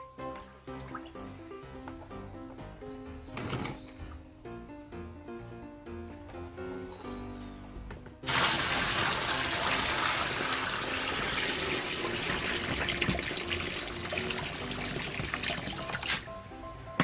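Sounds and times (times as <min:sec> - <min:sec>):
light background music: 0:00.0 - 0:17.0
water pouring into cooler: 0:08.3 - 0:16.2.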